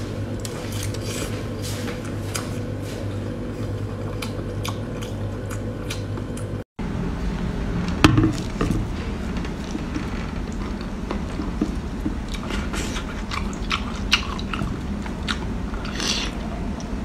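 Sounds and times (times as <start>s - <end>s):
person chewing and sucking: 0.4s - 6.6s, 10.5s - 17.0s
low hum: 2.6s - 17.0s.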